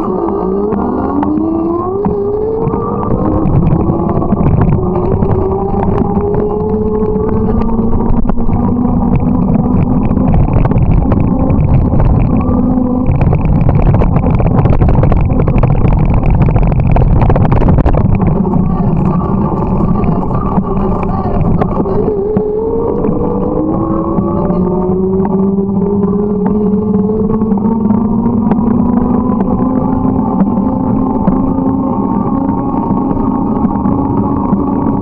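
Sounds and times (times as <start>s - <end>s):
motor whine: 0.0s - 35.0s
wind noise on microphone: 0.0s - 35.0s.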